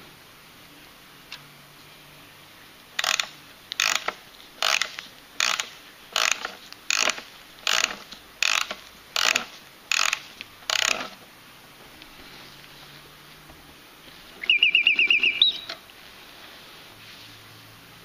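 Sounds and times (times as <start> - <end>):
key winding ratchet clicks: 3.0 - 11.0.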